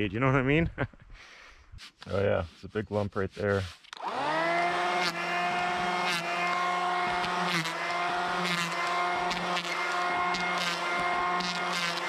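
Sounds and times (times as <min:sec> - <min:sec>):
planer blades cutting wood: 0:03.4 - 0:12.0
electric hand planer whining: 0:04.0 - 0:12.0.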